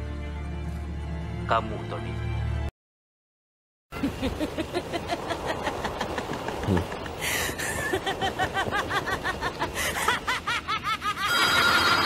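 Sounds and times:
cartoon villain cackling laugh: 7.8 - 12.0.

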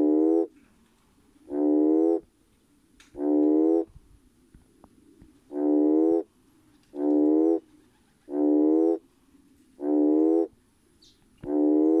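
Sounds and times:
toad calling: 0.0 - 0.5, 1.4 - 2.3, 3.2 - 3.9, 5.5 - 6.3, 6.9 - 7.7, 8.3 - 9.0, 9.8 - 12.0.

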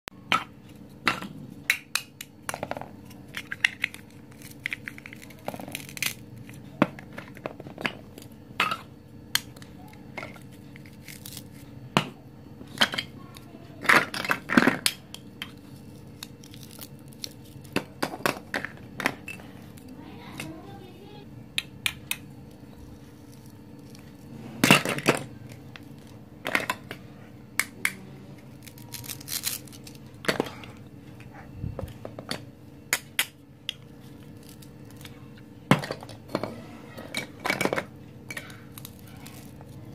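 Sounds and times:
plastic pieces scraping: 2.5 - 8.7, 27.9 - 30.8.

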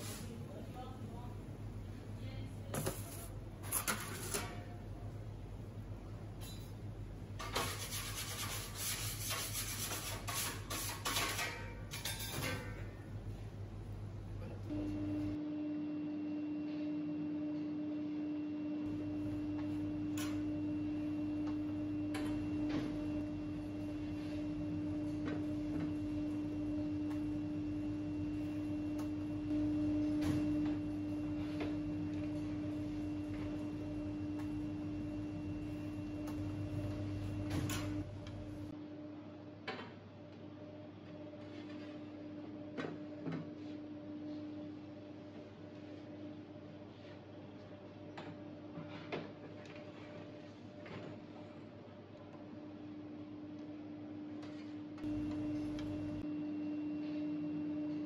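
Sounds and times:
rubbing scraping strokes: 7.6 - 11.2
low steady hum: 12.6 - 39.6, 52.2 - 58.0.

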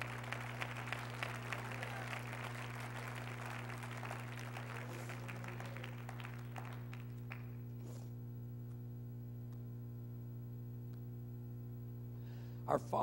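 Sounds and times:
crowd applauding: 0.0 - 7.6
steady low hum: 0.0 - 13.0.

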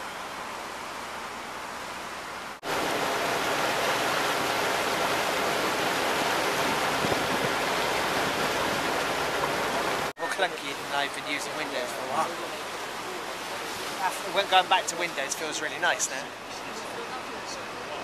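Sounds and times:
water rushing past ship hull: 0.0 - 18.0
wind: 0.0 - 18.0.

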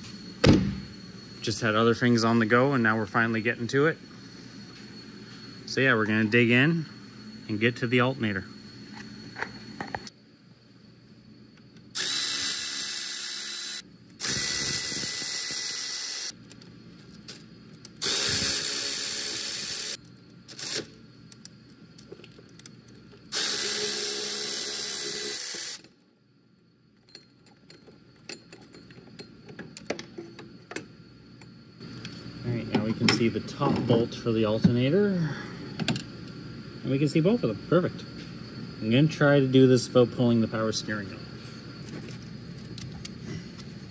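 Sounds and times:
cordless power tool bursts: 11.9 - 16.3, 18.0 - 20.9, 23.3 - 25.8.

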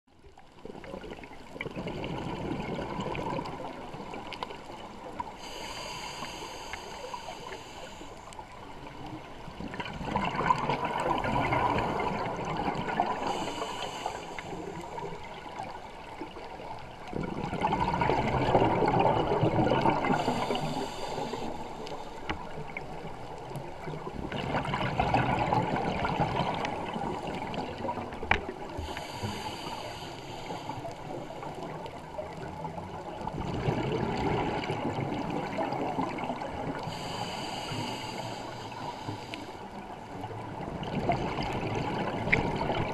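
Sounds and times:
gurgling exhaled bubbles: 0.4 - 5.9, 8.4 - 39.0, 39.7 - 42.9
regulator air hiss: 5.4 - 8.7, 13.2 - 15.0, 20.2 - 22.3, 28.8 - 31.5, 36.9 - 39.8.

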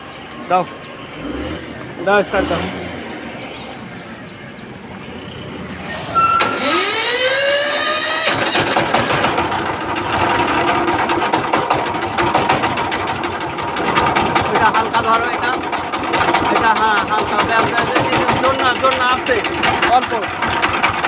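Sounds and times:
starter motor whine: 6.0 - 21.0
diesel engine knocking: 6.5 - 21.0.

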